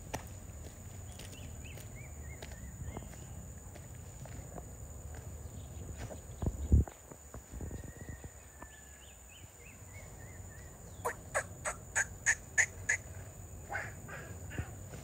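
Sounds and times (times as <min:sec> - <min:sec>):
bird calling sharply: 0:11.0 - 0:14.8.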